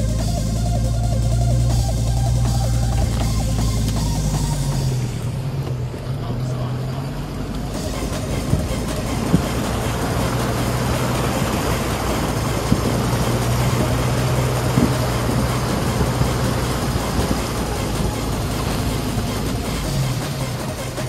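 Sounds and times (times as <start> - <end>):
vehicle engine droning: 0.0 - 21.0
water splashing around wheels: 0.0 - 21.0.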